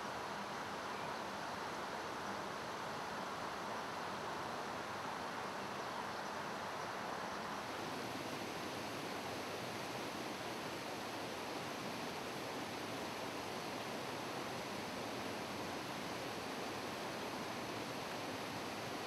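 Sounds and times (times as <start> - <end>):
mountain stream rushing over stones: 6.4 - 19.0.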